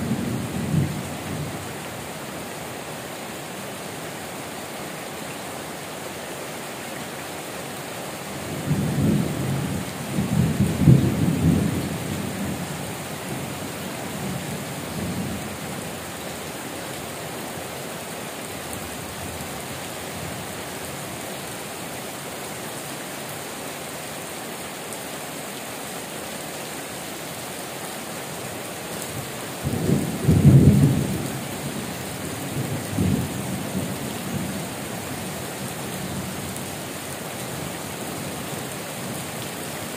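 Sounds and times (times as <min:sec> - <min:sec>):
heavy rain on metal roofs: 0:00.0 - 0:39.9.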